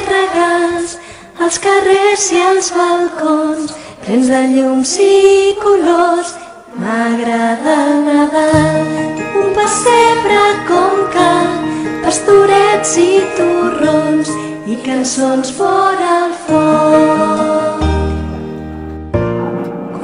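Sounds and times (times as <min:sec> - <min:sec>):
person singing: 0:00.0 - 0:18.5
musical accompaniment: 0:08.4 - 0:20.0.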